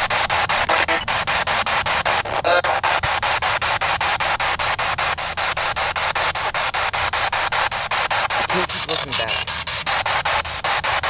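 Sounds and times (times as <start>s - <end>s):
radio static hiss chopped into clicks: 0.0s - 11.0s
snatch of radio station sound: 0.0s - 11.0s.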